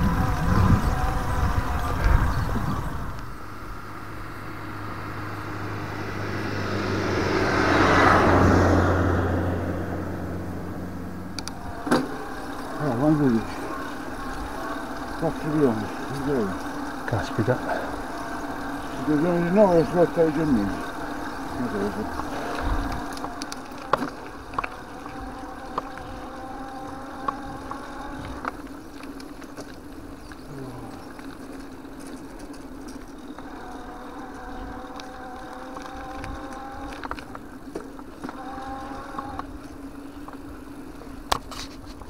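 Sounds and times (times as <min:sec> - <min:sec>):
electric bicycle motor whining: 0:00.0 - 0:42.0
tyre hum: 0:09.7 - 0:42.0.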